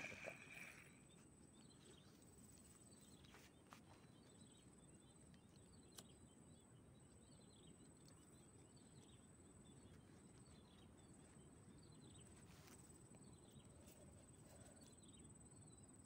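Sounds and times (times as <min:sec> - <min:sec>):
high insect drone: 0:00.0 - 0:01.2
faint bird chirps: 0:00.0 - 0:16.0.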